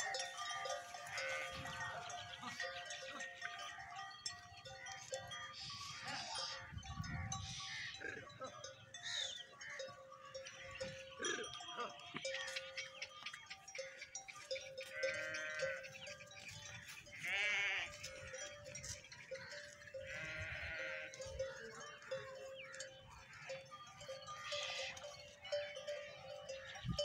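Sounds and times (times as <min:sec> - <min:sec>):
livestock grazing: 0:00.0 - 0:27.0
goats bleating: 0:00.1 - 0:06.6, 0:14.8 - 0:16.0, 0:16.9 - 0:18.2, 0:19.5 - 0:22.3, 0:24.3 - 0:25.2.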